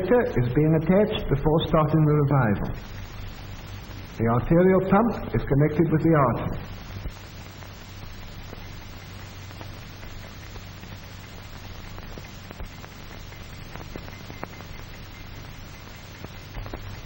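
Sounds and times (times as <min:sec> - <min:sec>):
film soundtrack hiss: 0:00.0 - 0:17.0
low hum: 0:00.0 - 0:17.0
clicks and pops: 0:06.6 - 0:17.0.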